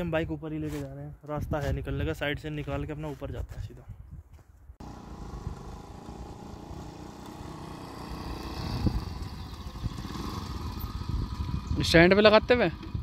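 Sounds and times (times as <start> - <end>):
motorcycle engine running: 4.8 - 13.0.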